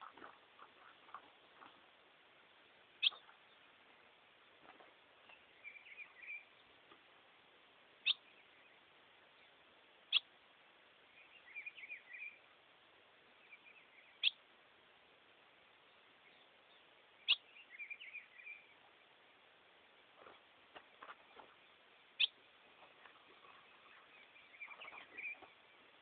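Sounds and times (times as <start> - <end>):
bird twittering: 3.0 - 3.4, 5.6 - 6.5, 8.0 - 8.8, 17.2 - 18.7, 22.2 - 25.7.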